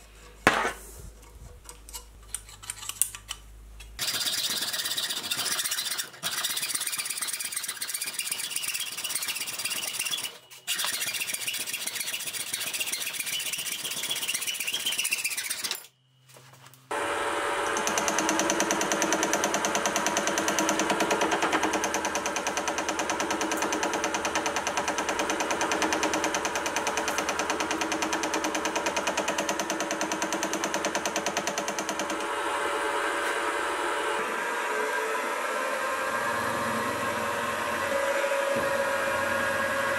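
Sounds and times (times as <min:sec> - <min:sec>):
saw blade cutting steel: 0:04.0 - 0:15.9
milling machine whirring: 0:16.9 - 0:39.9.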